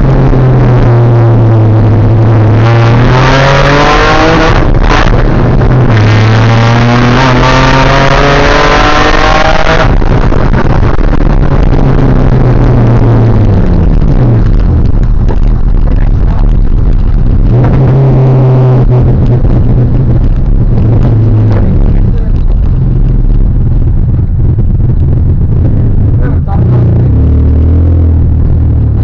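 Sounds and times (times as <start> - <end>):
car engine revving: 0.0 - 29.0.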